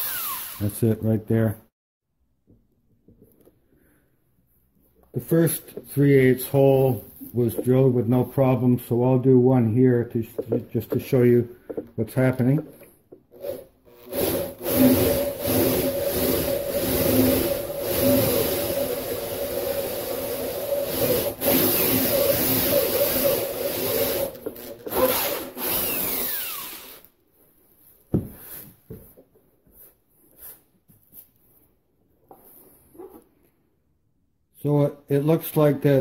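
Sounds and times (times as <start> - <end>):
drill grinding through fiberglass: 0.0 - 0.8, 13.4 - 27.0.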